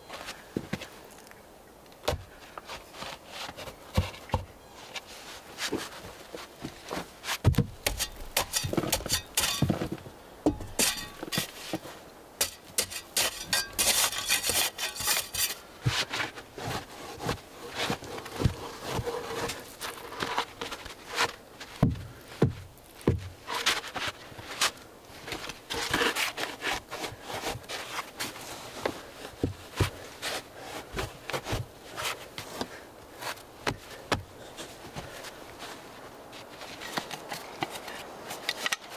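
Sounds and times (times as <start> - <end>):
spade digging sandy soil: 7.2 - 28.5.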